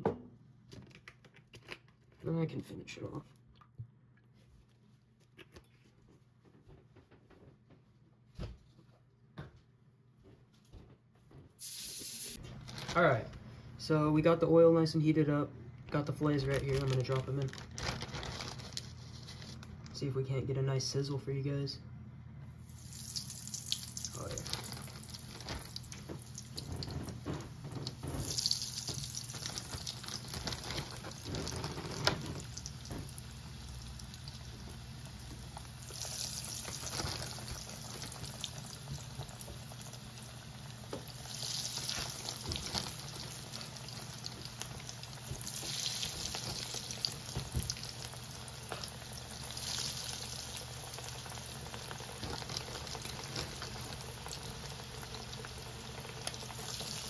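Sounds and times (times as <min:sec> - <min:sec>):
fish deep-frying in oil: 0:22.7 - 0:57.0.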